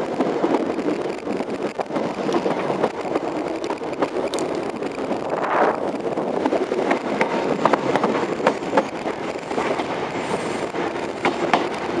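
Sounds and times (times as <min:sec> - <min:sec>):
train running noise: 0:00.0 - 0:12.0
wheels clicking over rails: 0:00.0 - 0:12.0.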